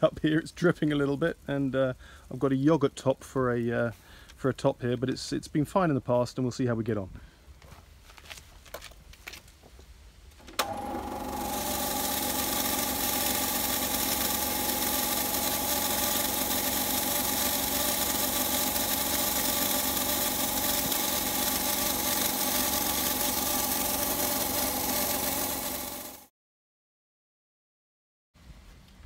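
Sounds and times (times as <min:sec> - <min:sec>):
motor switch click: 0:10.4 - 0:12.8
paint sprayer motor whine and hum: 0:10.4 - 0:26.3.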